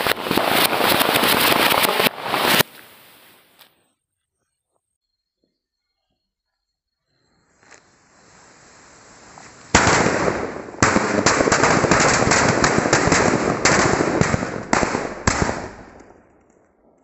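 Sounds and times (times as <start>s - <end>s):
firecracker blasts: 0.0s - 3.6s, 7.6s - 16.4s
black powder hissing: 0.0s - 3.7s, 7.6s - 10.8s
sharp loud bangs: 9.8s - 16.0s.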